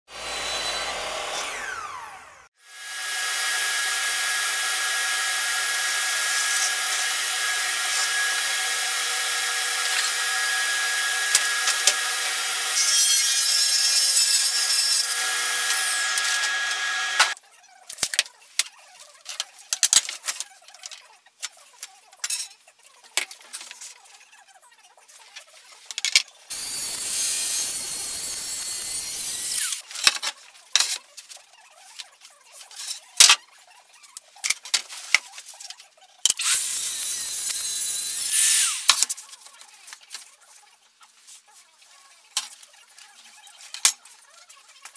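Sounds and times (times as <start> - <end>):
track saw cutting wood: 0.1 - 17.4, 26.5 - 29.8, 36.4 - 38.9.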